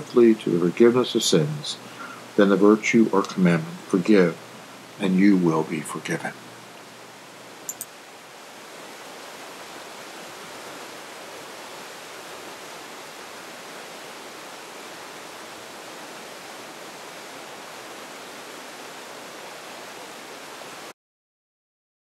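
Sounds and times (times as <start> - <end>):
river water rushing over rapids: 6.4 - 20.9.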